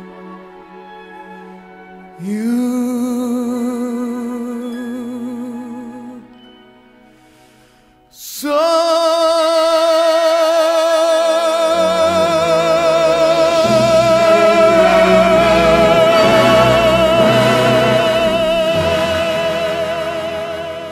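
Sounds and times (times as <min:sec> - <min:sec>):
person singing with vibrato: 0:02.2 - 0:06.4, 0:08.1 - 0:20.9
instrumental accompaniment: 0:11.7 - 0:20.9.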